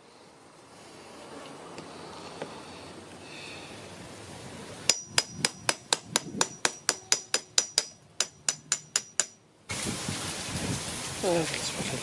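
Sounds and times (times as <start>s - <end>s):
hammer striking metal: 4.9s - 9.4s.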